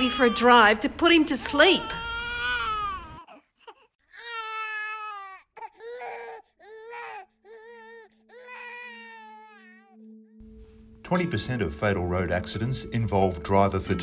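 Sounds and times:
infant crying: 0.0 - 0.7, 1.5 - 10.0.

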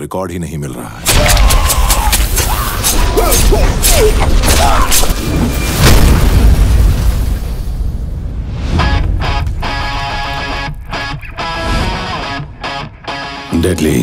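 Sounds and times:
loud explosion: 1.1 - 10.9
music: 8.8 - 14.0.

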